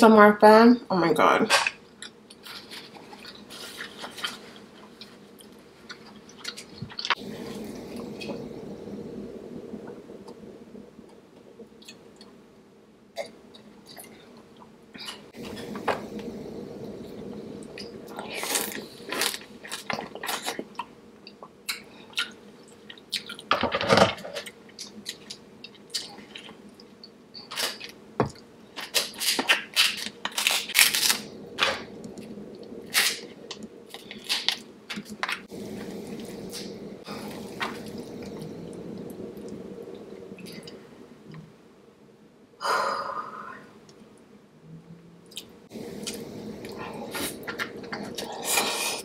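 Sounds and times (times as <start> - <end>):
chewing and wet mouth sounds: 2.0 - 7.2, 17.7 - 23.5, 45.2 - 49.0.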